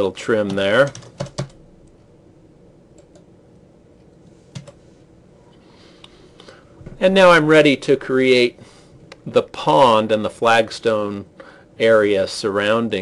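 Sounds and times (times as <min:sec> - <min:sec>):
computer keyboard keystrokes: 0:00.5 - 0:01.6, 0:03.0 - 0:03.3.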